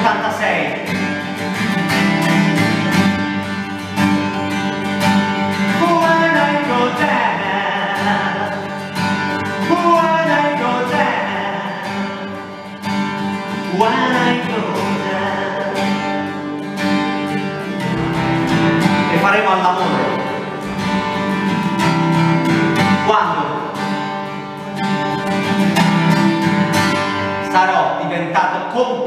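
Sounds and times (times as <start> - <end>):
acoustic guitar strumming: 0.0 - 29.0
man singing: 5.6 - 12.7, 13.4 - 16.3, 18.0 - 20.7, 22.9 - 23.8.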